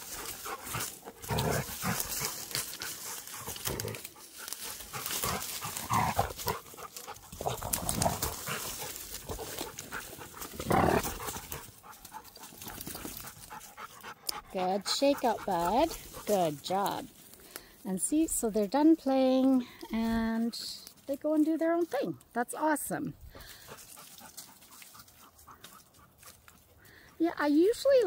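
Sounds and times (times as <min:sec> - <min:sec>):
leaves rustling under paws: 0:00.0 - 0:14.2, 0:23.4 - 0:26.8
dogs play-fighting: 0:00.0 - 0:14.6, 0:23.6 - 0:26.8.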